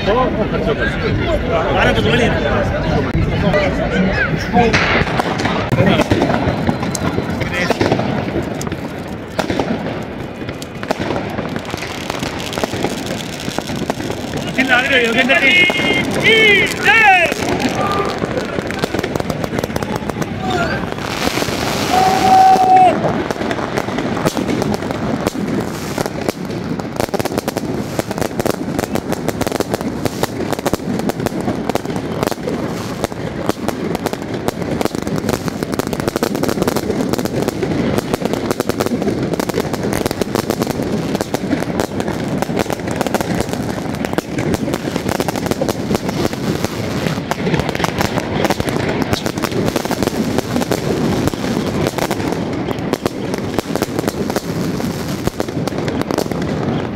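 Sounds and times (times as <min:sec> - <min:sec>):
voices: 0:00.0 - 0:09.1, 0:14.2 - 0:21.2
fireworks crackling and banging: 0:00.0 - 0:56.9.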